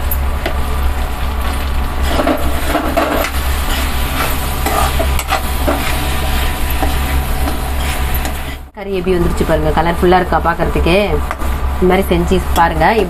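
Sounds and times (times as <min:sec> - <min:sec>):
steady low hum: 0:00.0 - 0:13.0
chicken sizzling in oil: 0:00.1 - 0:08.8
spatula scraping a pan: 0:02.0 - 0:08.7.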